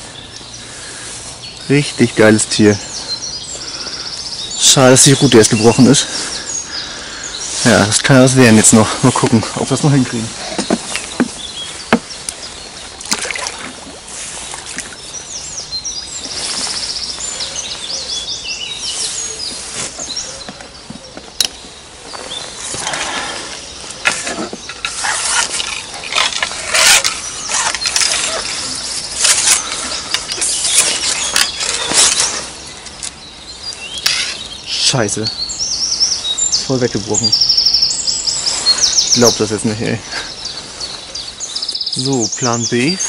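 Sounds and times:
songbirds chirping: 0:00.0 - 0:43.0
rustling and scraping handling noises: 0:07.5 - 0:15.1, 0:16.2 - 0:18.1, 0:18.7 - 0:21.4, 0:22.0 - 0:33.2.

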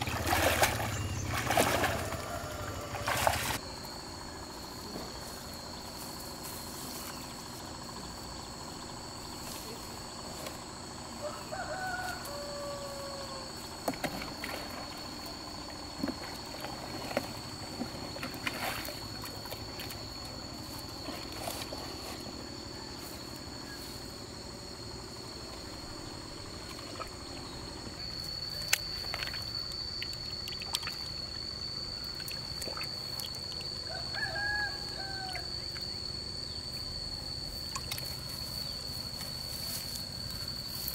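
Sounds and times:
bird calling: 0:00.0 - 0:03.6
insects droning: 0:00.0 - 0:40.9.

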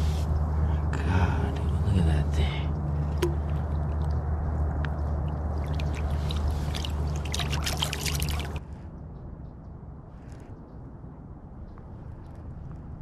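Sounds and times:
steady low hum: 0:00.0 - 0:13.0
water splashing and dripping: 0:03.0 - 0:08.6.

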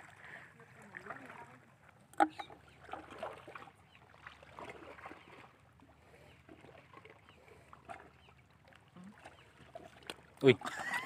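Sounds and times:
sea water lapping at shore: 0:00.0 - 0:11.0
small splashes and clicks: 0:06.5 - 0:11.0.

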